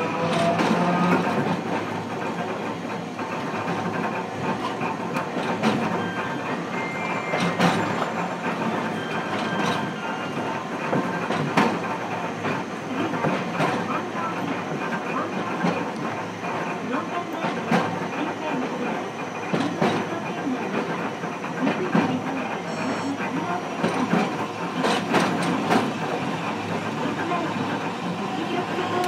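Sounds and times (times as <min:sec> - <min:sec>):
tram running rumble: 0:00.0 - 0:29.0
tram wheels clattering over track: 0:00.0 - 0:29.0.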